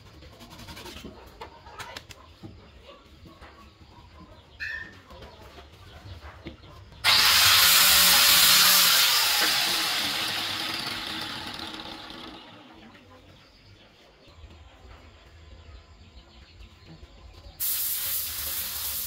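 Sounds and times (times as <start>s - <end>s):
loud even hiss: 17.6s - 19.0s.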